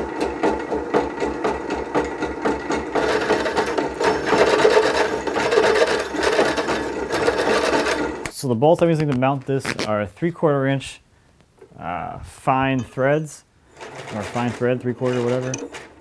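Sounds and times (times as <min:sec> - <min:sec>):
drill press boring through steel: 0:00.0 - 0:08.2.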